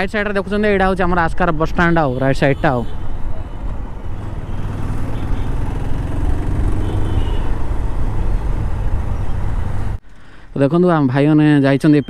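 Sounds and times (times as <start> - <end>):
vehicle engine and road rumble: 0.0 - 10.3.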